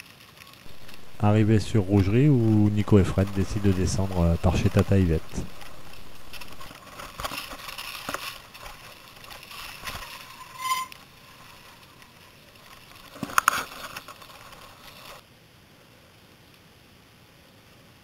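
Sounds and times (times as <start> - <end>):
mountain bike rattling: 0.0 - 15.2
high squeak: 10.0 - 11.0.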